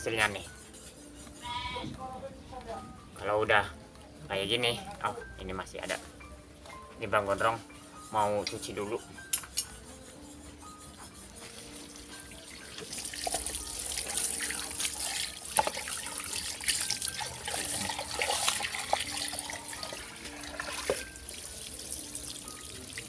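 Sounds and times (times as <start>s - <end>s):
hose water splashing on shell: 11.9s - 23.0s.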